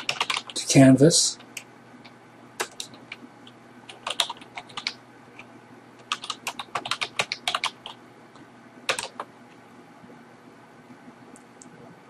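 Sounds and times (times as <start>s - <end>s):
computer keyboard typing: 0.0s - 0.6s, 2.6s - 8.0s, 8.9s - 9.3s.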